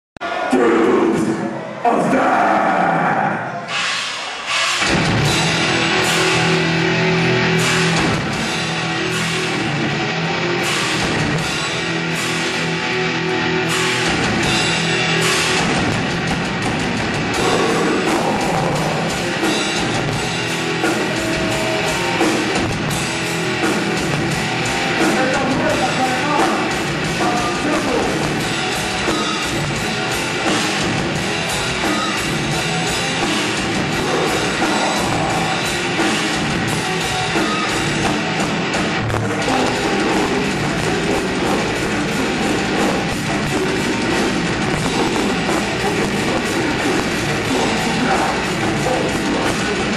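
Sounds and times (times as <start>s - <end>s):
heavy metal band playing: 0.2s - 49.9s
fast drumming: 13.7s - 49.9s.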